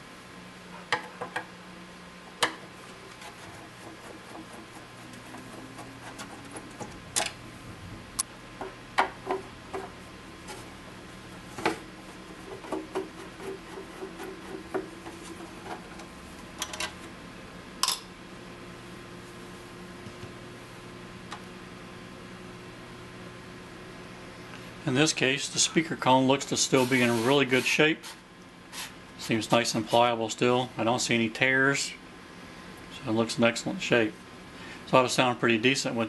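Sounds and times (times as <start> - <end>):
low steady hum: 0.0 - 36.0
clicks and knocks of tool handling: 15.6 - 17.1.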